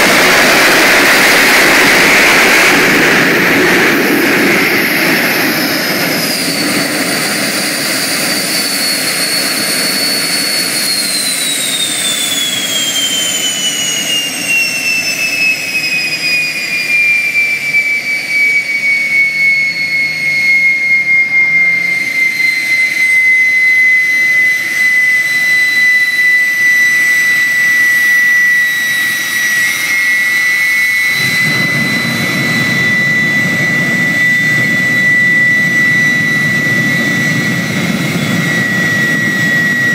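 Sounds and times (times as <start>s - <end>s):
low rushing of burning fuel: 0.0s - 12.6s, 29.5s - 39.9s
gas turbine whine: 0.0s - 39.9s.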